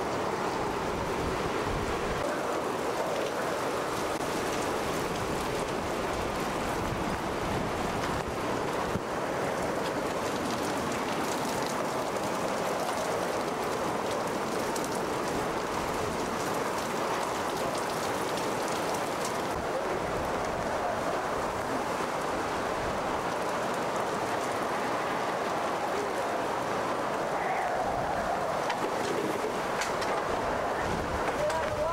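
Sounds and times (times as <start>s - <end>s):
heavy driving rain: 0.0s - 31.9s
strong wind rushing: 19.5s - 31.9s.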